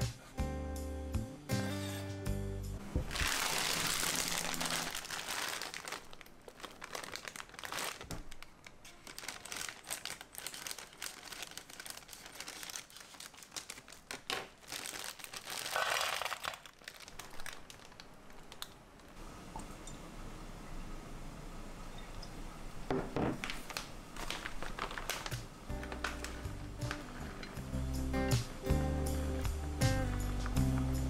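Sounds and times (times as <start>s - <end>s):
plastic bag crinkling: 3.0s - 19.2s, 23.4s - 27.6s.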